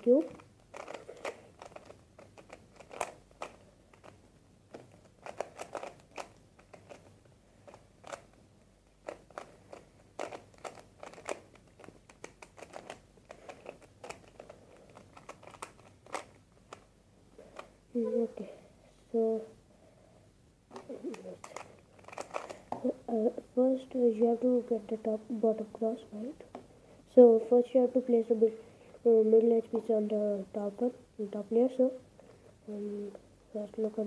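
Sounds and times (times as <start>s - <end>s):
puzzle cube layers clicking: 0.2s - 4.2s.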